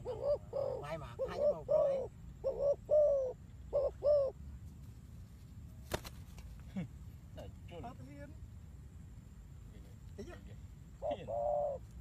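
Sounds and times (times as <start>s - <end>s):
dove cooing: 0.0s - 4.4s, 11.0s - 12.0s.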